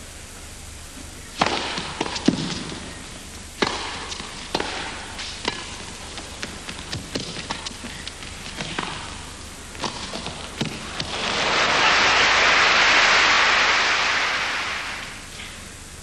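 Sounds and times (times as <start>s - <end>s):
tennis racquet striking ball: 1.4s - 2.7s, 3.6s - 7.9s, 8.5s - 11.8s
tennis ball bouncing: 1.4s - 2.8s, 3.6s - 11.4s.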